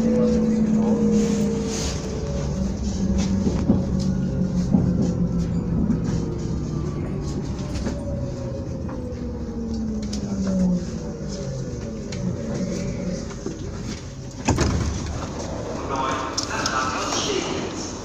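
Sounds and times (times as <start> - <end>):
train running rumble: 0.0 - 18.0
train traction motors whining: 0.0 - 18.0
train doors opening clunk: 13.8 - 15.6.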